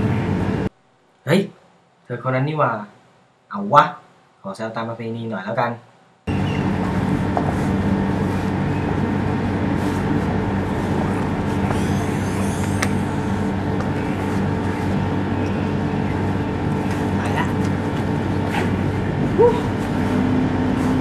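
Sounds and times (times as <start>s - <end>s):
road traffic with engine hum: 0.0s - 0.7s, 6.3s - 21.0s.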